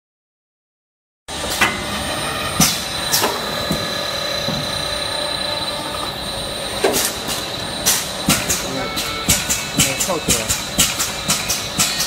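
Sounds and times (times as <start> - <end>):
machine running with high whine: 1.3 - 12.0
sharp machine clacks: 1.3 - 12.0.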